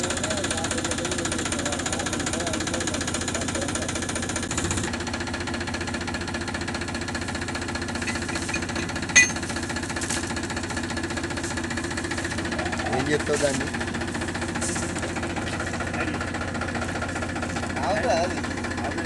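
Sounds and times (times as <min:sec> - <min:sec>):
tractor diesel engine idling: 0:00.0 - 0:19.0
sharp clink: 0:08.1 - 0:09.5.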